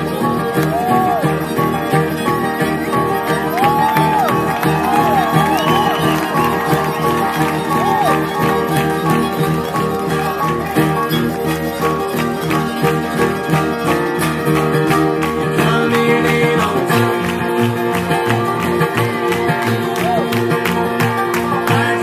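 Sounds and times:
bluegrass band playing: 0:00.0 - 0:22.0.

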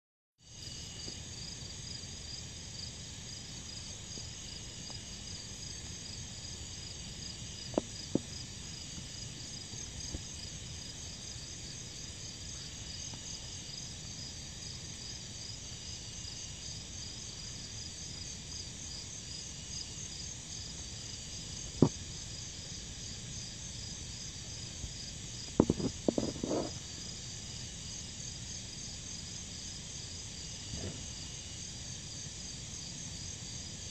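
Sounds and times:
insects trilling: 0:00.4 - 0:33.9
short sharp knocks: 0:25.6 - 0:26.7.

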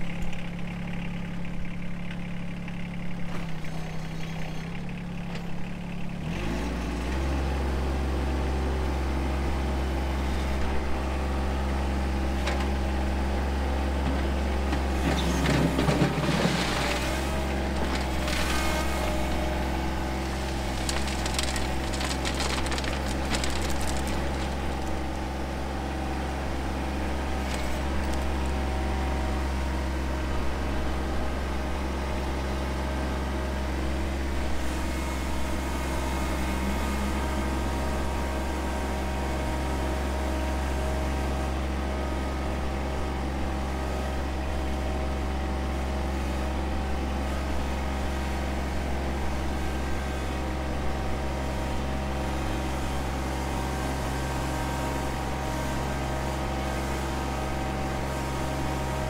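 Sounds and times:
tractor diesel engine running: 0:00.0 - 0:59.0
rock crunching in loader bucket: 0:14.2 - 0:25.8.

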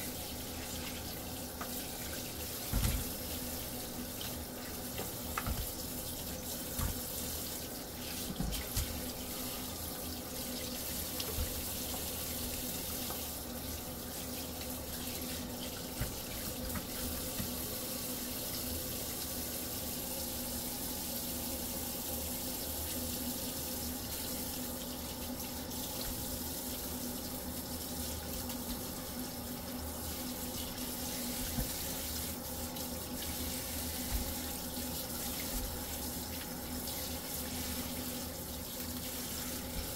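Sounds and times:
tap running into steel sink: 0:05.0 - 0:05.8.

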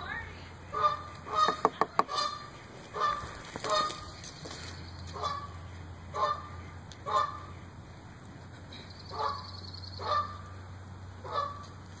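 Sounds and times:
steady low hum: 0:00.0 - 0:12.0
bird giving nasal mewing calls: 0:00.8 - 0:04.1.

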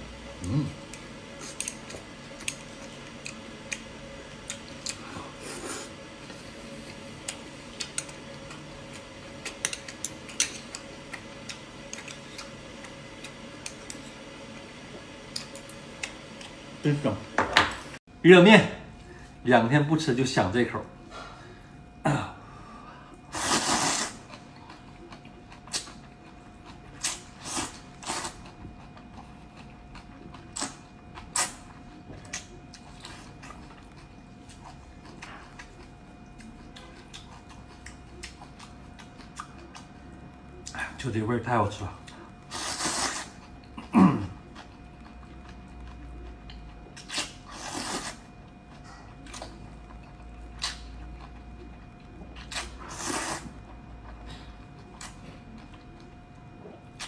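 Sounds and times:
person slurping noodles: 0:23.3 - 0:24.2, 0:42.5 - 0:44.2, 0:47.5 - 0:48.2, 0:52.5 - 0:53.6
chewing: 0:24.1 - 0:40.8, 0:42.0 - 0:57.0.

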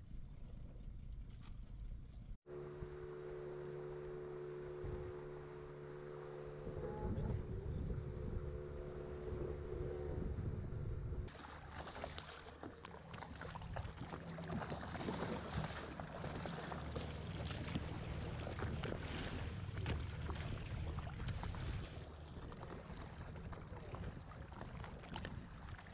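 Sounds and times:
boat engine hum: 0:02.0 - 0:25.9
wind on microphone: 0:06.6 - 0:11.3, 0:17.3 - 0:25.9
water churning along hull: 0:11.2 - 0:25.9
water rushing past hull: 0:11.2 - 0:25.9.

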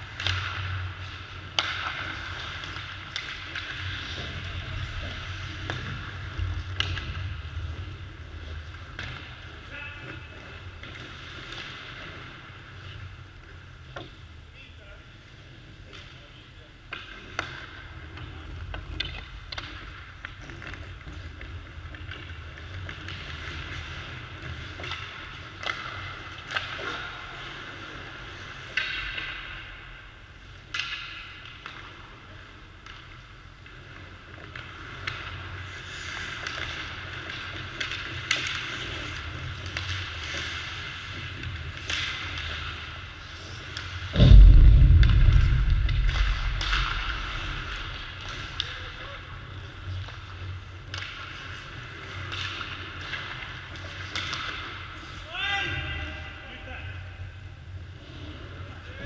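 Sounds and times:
skates scraping on ice: 0:00.0 - 0:14.2, 0:15.1 - 0:44.1, 0:46.1 - 0:56.2, 0:57.7 - 0:59.0
hockey sticks and pucks clacking: 0:00.0 - 0:44.1, 0:46.1 - 0:59.0
deep thud on rink boards: 0:44.2 - 0:48.6.

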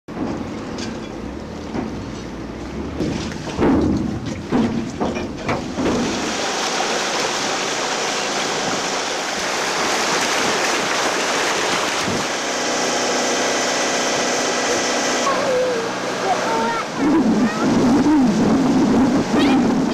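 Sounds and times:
wind and water rushing past yacht: 0:00.1 - 0:19.9
wind buffeting microphone: 0:08.4 - 0:12.4, 0:16.8 - 0:19.9.

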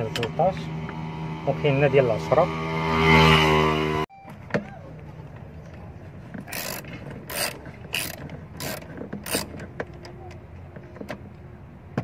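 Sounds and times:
ratchet wrench clicking: 0:06.5 - 0:09.6.

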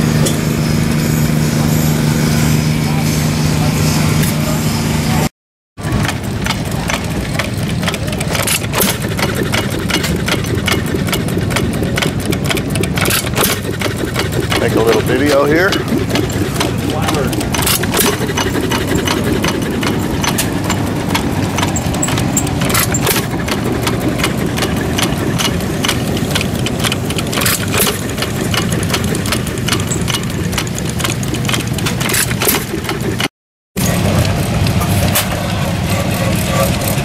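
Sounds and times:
engines low rumble: 0:00.0 - 0:37.0
clatter of knocks and clicks: 0:05.8 - 0:35.3.

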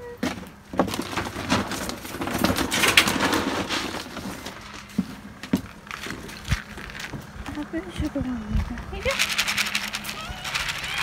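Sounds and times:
kibble pellets rattling into plastic: 0:00.8 - 0:04.9, 0:05.7 - 0:07.6, 0:09.0 - 0:11.0.

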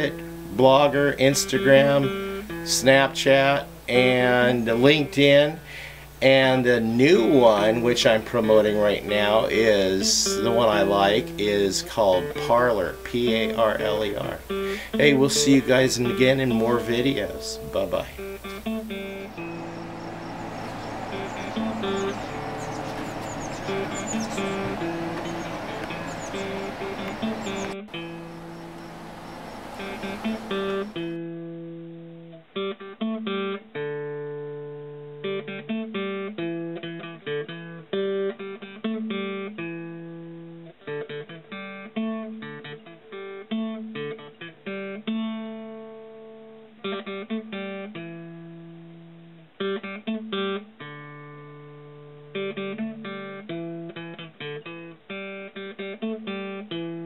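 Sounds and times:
held bass notes: 0:00.0 - 0:31.2
picked guitar notes: 0:00.0 - 0:57.0.

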